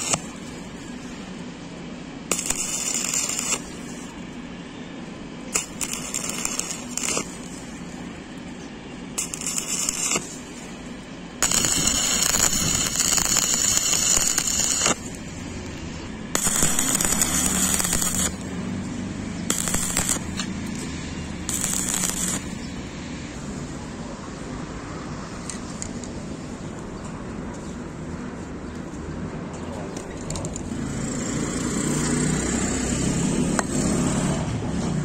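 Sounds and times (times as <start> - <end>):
welding arc crackling: 0.0 - 1.4, 2.3 - 4.4, 5.5 - 8.5, 9.1 - 23.0.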